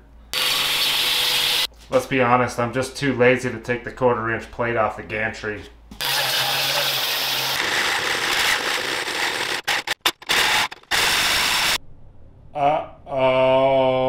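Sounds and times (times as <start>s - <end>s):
hole saw drilling steel: 0.3s - 1.7s, 6.0s - 11.8s
angle grinder cutting steel: 0.4s - 1.7s, 6.0s - 11.8s.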